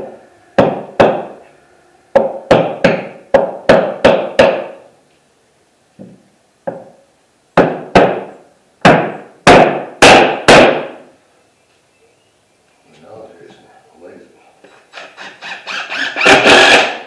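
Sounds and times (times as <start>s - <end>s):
hammer blows on wood panel: 0.0s - 1.4s, 2.1s - 4.9s, 7.6s - 11.1s.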